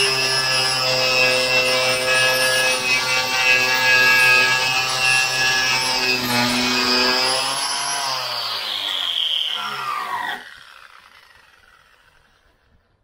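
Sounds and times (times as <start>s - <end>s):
angle grinder on steel: 0.0s - 12.7s
grinder disc spinning down: 0.0s - 12.9s.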